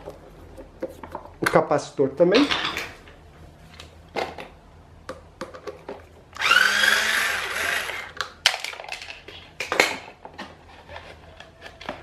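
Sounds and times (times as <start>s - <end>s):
power screwdriver whining: 6.4s - 8.2s.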